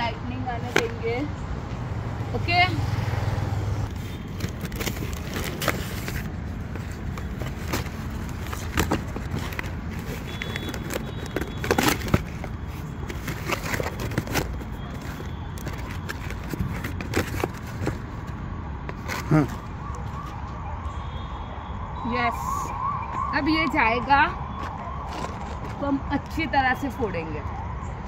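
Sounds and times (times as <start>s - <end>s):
outdoor background noise: 0.0s - 28.0s
cardboard rustling and tapping: 3.9s - 19.6s, 24.5s - 25.8s.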